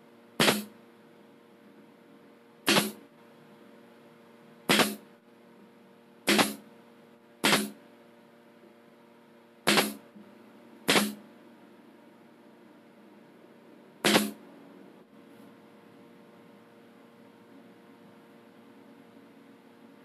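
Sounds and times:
nail gun firing into wood: 0:00.4 - 0:00.7, 0:02.7 - 0:03.0, 0:04.7 - 0:05.0, 0:06.3 - 0:06.6, 0:07.4 - 0:07.8, 0:09.7 - 0:10.0, 0:10.9 - 0:11.2, 0:14.0 - 0:14.4.

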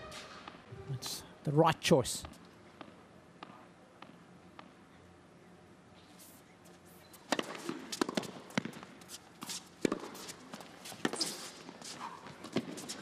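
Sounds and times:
tennis ball struck by rackets: 0:07.3 - 0:08.9, 0:09.8 - 0:10.3.

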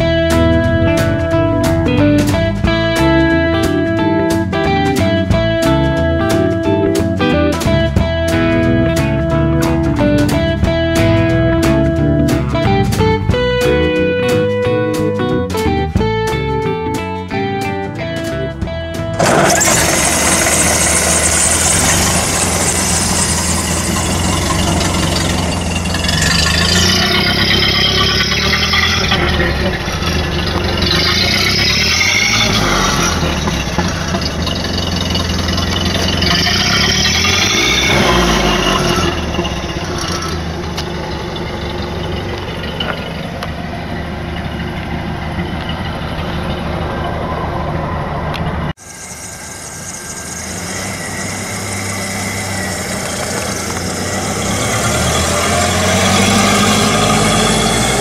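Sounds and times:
car engine revving: 0:18.1 - 0:58.0.

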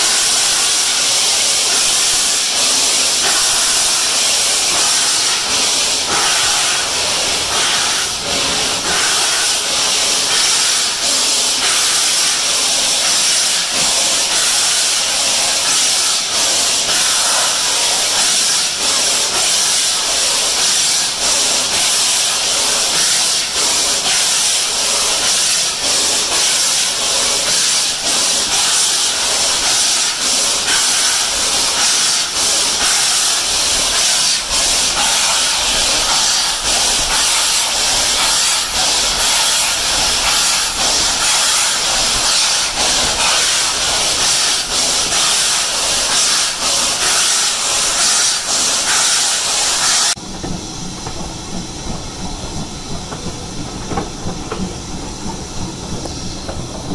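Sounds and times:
steam locomotive hissing and beating: 0:00.0 - 0:56.9
train rumbling on rails: 0:31.2 - 0:48.7, 0:50.2 - 0:56.9.

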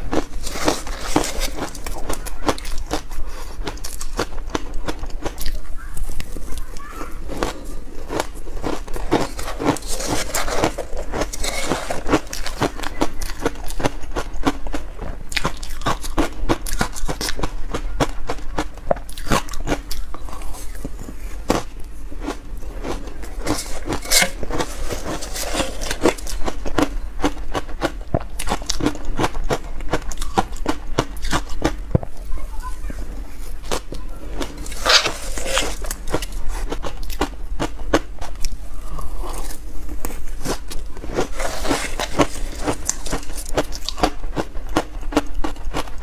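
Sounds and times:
crisp crunching of ice: 0:00.0 - 0:46.0
metal spoon scraping bowl: 0:00.3 - 0:02.0, 0:08.8 - 0:12.9, 0:22.6 - 0:26.6, 0:34.5 - 0:36.4, 0:41.2 - 0:43.4.

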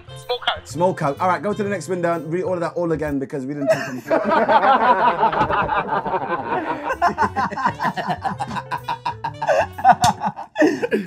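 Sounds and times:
men laughing: 0:03.6 - 0:11.0.

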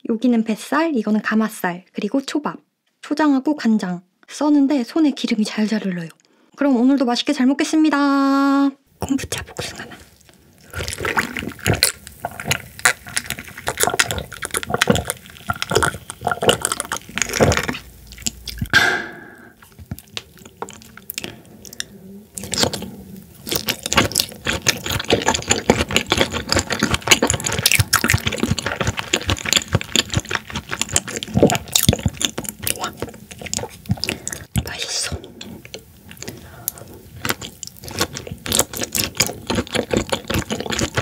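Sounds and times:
wet chewing: 0:09.0 - 0:18.8, 0:19.6 - 0:41.0
person swallowing drink: 0:10.7 - 0:41.0
mouth clicks and lip smacks: 0:10.9 - 0:18.9, 0:19.6 - 0:41.0
short pitched exhale: 0:18.8 - 0:19.6.

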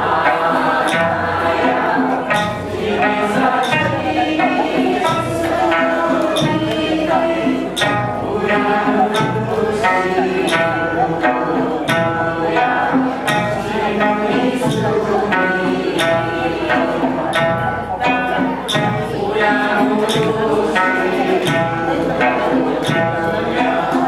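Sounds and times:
plucked lutes: 0:00.0 - 0:24.0
voices singing together: 0:00.0 - 0:24.0.

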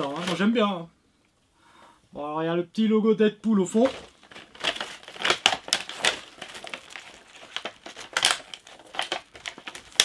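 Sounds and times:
plastic packaging crinkling: 0:00.0 - 0:00.6, 0:03.7 - 0:10.0.

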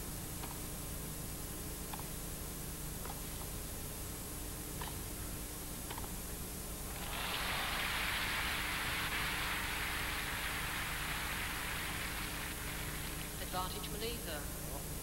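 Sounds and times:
crowd applauding: 0:06.9 - 0:13.4.

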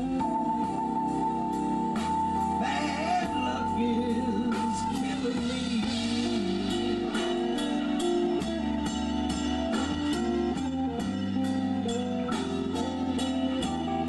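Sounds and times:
bass: 0:00.0 - 0:14.0
electric guitar line: 0:00.0 - 0:14.0
drum beat: 0:02.0 - 0:14.0.

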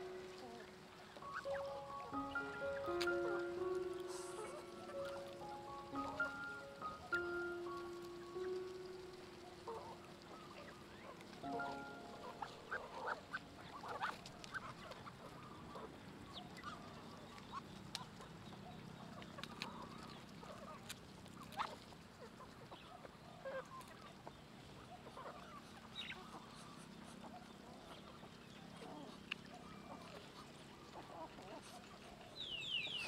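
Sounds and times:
ducks and poultry calling: 0:00.0 - 0:15.4.

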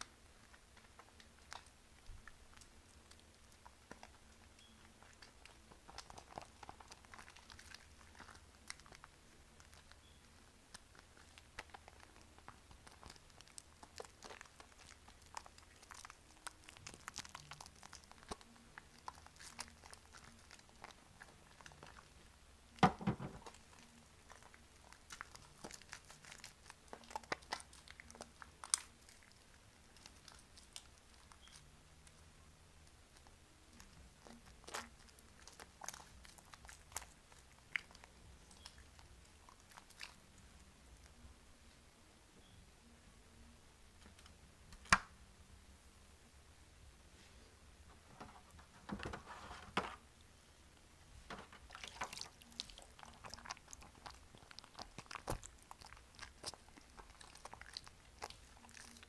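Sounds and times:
soap squishing in water: 0:00.0 - 0:31.7, 0:32.9 - 0:40.4, 0:51.3 - 0:59.0
wet thump: 0:22.8 - 0:23.5.

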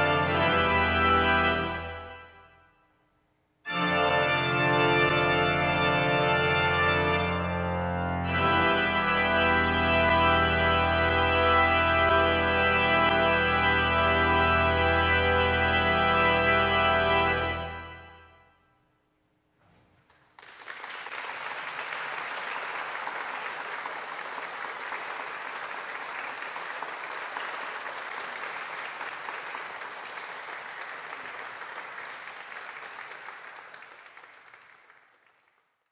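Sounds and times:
pipe organ chord: 0:00.0 - 0:02.8, 0:03.7 - 0:18.7
audience applauding: 0:20.0 - 0:35.9.

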